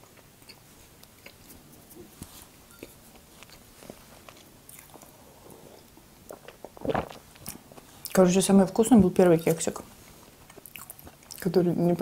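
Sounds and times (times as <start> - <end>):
chewing soft food: 0.0 - 2.1, 2.7 - 8.2, 10.4 - 11.5.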